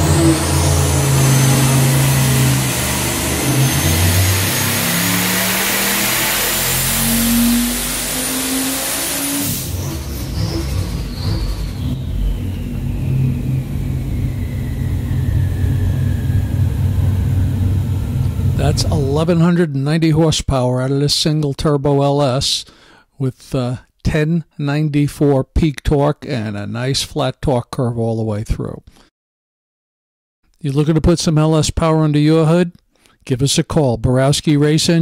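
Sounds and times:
engine revving: 0.0 - 19.5
rough low engine running: 0.0 - 19.5
turbo whine: 0.0 - 19.5.

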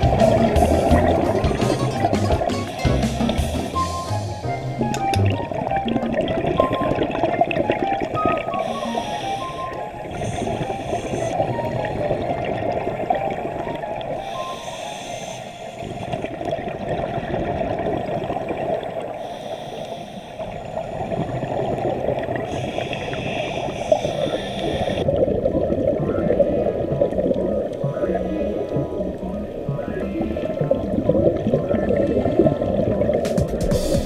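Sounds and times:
exhaled bubbles gurgling underwater: 0.0 - 34.0
regulator inhalation hiss: 2.7 - 4.5, 8.6 - 11.4, 14.2 - 16.1, 19.2 - 20.8, 22.5 - 25.0.

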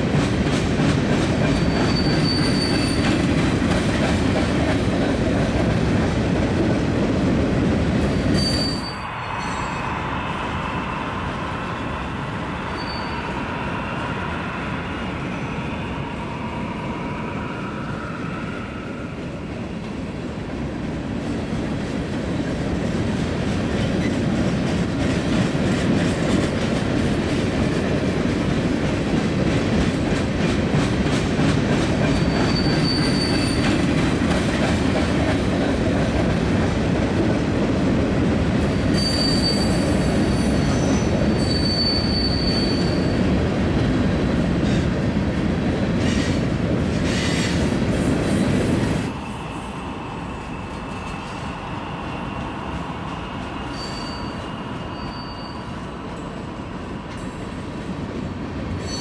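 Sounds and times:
freight train rumbling past: 0.0 - 59.0
high wheel squeals: 1.5 - 3.1, 8.3 - 10.0, 12.6 - 13.6, 32.1 - 33.7, 38.9 - 43.2, 53.6 - 55.8.

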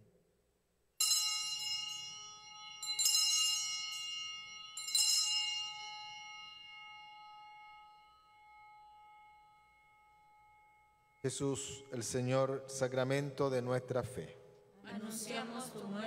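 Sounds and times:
bell ringing: 1.0 - 12.4.

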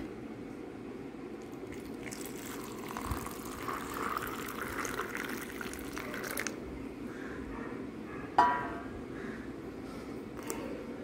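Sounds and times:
hot water poured into a glass: 1.7 - 6.5.

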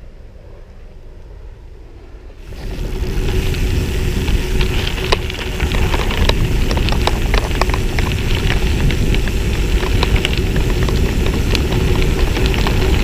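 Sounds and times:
wind rumble on microphone: 0.0 - 13.0
bicycle tyre noise: 2.1 - 13.0
small sharp clicks and rattles: 4.3 - 13.0.

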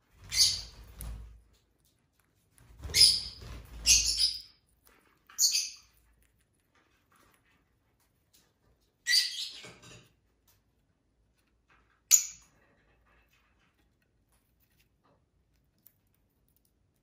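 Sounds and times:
lovebird chirping: 0.2 - 1.0, 2.8 - 4.6, 5.3 - 6.0, 9.0 - 9.7, 12.1 - 12.4.

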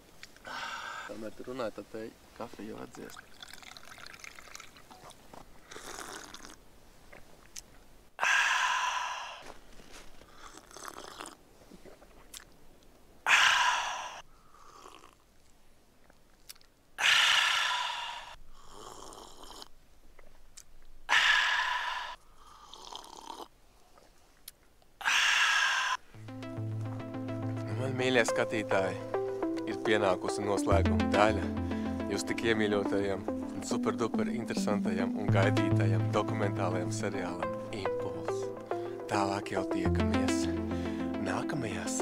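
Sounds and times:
man slurping hot coffee: 5.6 - 6.6, 10.4 - 12.0, 14.6 - 15.2, 18.7 - 19.7, 22.6 - 23.5.

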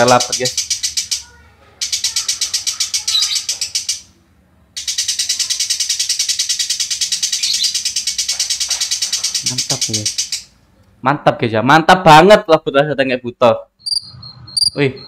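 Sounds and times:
lovebird singing rattle of chips: 0.0 - 4.1, 4.8 - 10.5.

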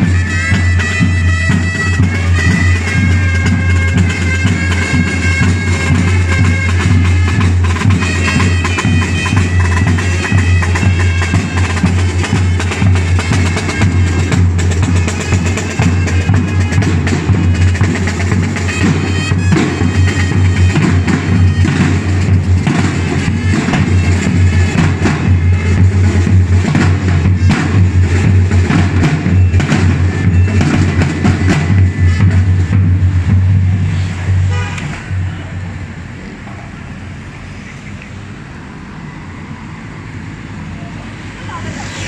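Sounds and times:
bugles holding notes: 0.0 - 33.6
bass and tenor drums beating: 0.0 - 36.2.

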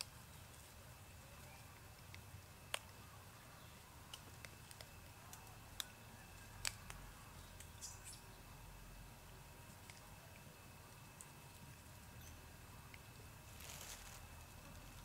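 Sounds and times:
low steady hum: 0.0 - 15.0
monkeys rustling in dry leaves: 13.4 - 15.0.

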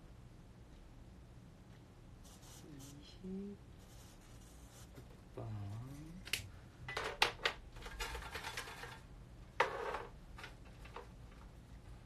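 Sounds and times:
paper slips rattling and rustling: 7.8 - 9.0.

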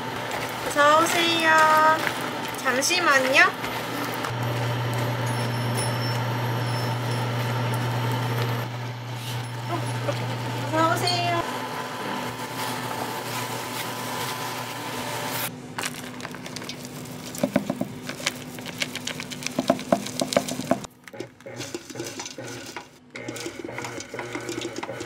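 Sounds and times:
stand mixer beating dough: 0.0 - 15.5, 19.6 - 25.0
spatula stirring sticky nuts in bowl: 17.2 - 25.0.

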